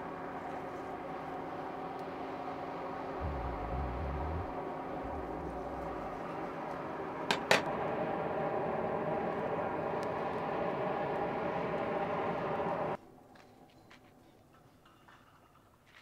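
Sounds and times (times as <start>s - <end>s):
air blower whirring: 2.0s - 13.0s.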